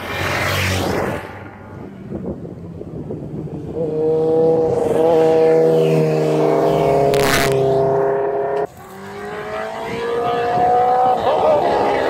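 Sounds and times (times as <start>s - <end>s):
motorcycle engine at high revs: 3.4s - 12.0s.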